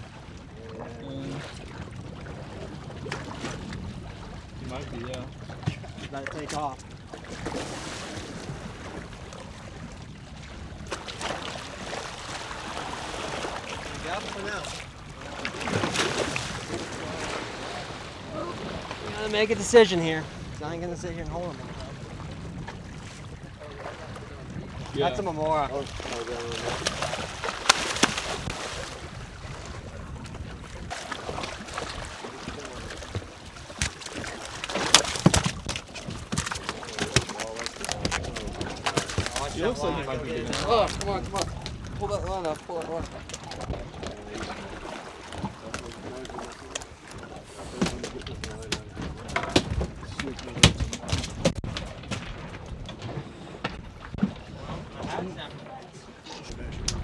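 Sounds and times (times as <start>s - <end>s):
sea noise: 0.0s - 57.0s
water noise: 0.0s - 57.0s
sharp knocks or splashes: 10.8s - 17.4s, 25.8s - 29.0s, 30.8s - 39.8s, 40.4s - 55.2s
wind noise: 14.9s - 34.4s, 37.4s - 46.2s, 56.4s - 57.0s
fish thrashing at surface: 26.0s - 29.0s, 30.9s - 39.6s.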